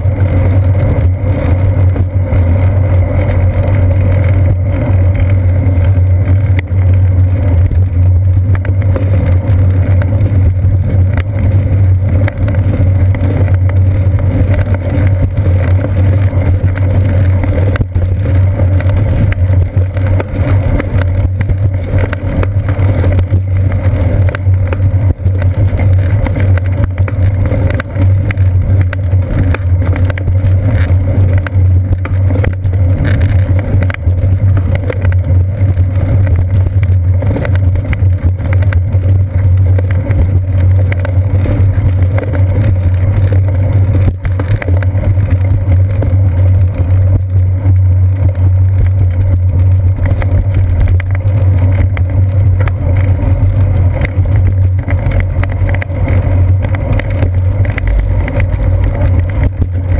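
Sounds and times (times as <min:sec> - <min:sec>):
road vibration rumble: 0:00.0 - 0:59.9
wind on camera: 0:00.0 - 0:59.9.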